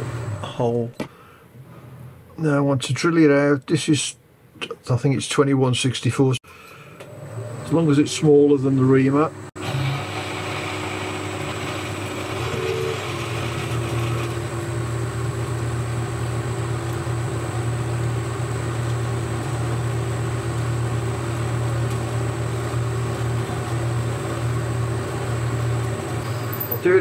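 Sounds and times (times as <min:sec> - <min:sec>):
drill cutting into steel bar: 0:09.6 - 0:14.6
lathe humming: 0:09.6 - 0:26.3.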